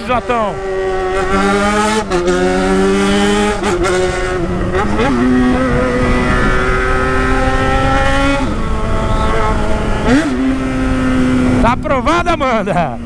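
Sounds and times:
motorcycle engine under throttle: 0.0 - 13.0.

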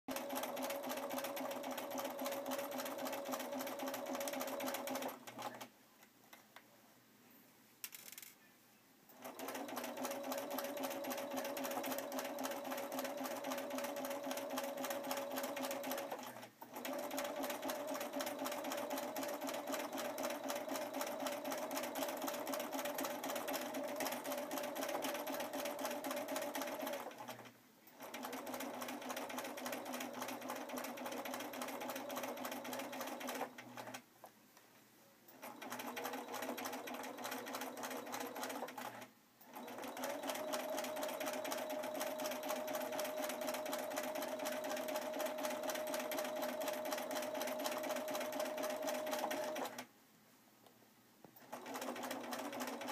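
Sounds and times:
sewing machine motor whine: 9.2 - 27.4, 35.4 - 49.8.

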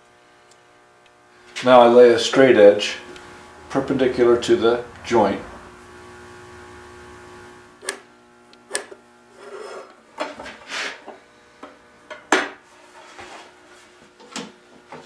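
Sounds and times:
scratchy rubbing and marking strokes: 9.3 - 10.0.

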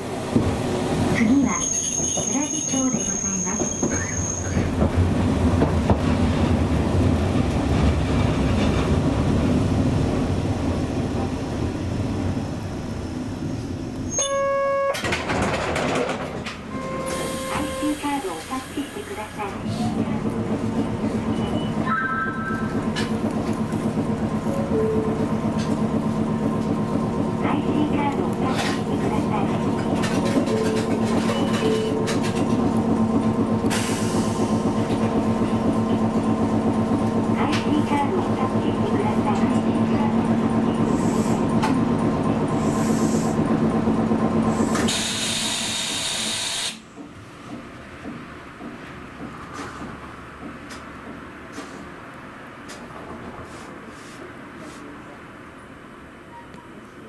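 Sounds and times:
tram running hum: 0.0 - 57.0
high-pitched wheel squeal: 1.5 - 4.7, 14.1 - 15.0.

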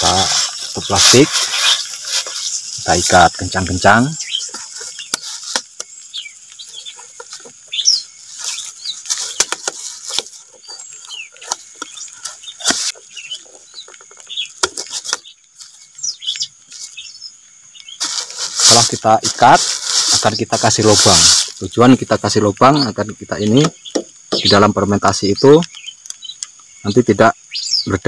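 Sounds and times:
plastic bag crinkling: 0.0 - 3.1, 18.0 - 21.6.

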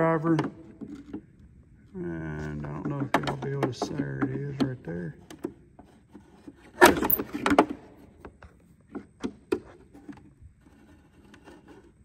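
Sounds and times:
screwdriver scraping plastic: 9.6 - 12.0.

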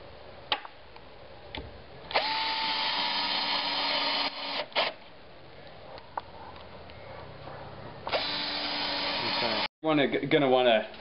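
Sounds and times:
power drill driving screws: 2.1 - 5.0, 8.1 - 9.7.

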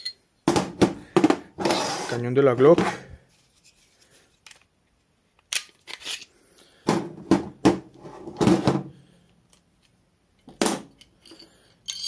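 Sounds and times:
pistol parts clicking together: 5.4 - 6.3.

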